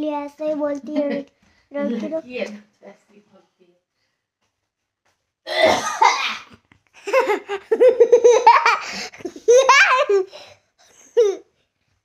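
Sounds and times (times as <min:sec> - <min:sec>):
boy laughing: 0:06.0 - 0:11.5.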